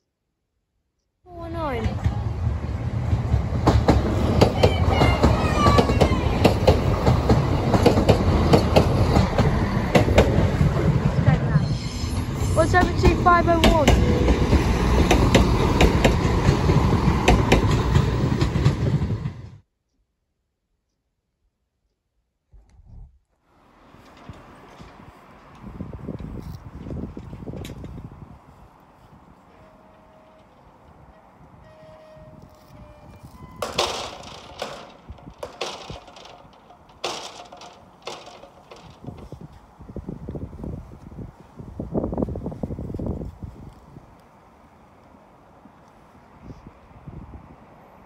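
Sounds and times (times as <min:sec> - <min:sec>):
train wheels rumbling on rails: 0:01.3 - 0:19.6, 0:23.8 - 0:43.8
wheel clicks over rail joints: 0:03.6 - 0:10.7, 0:32.5 - 0:39.7.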